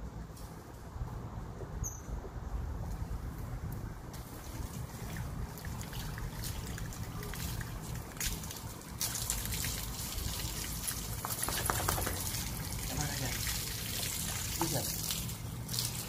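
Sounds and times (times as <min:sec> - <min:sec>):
hose water splashing on dog: 0:04.1 - 0:16.0.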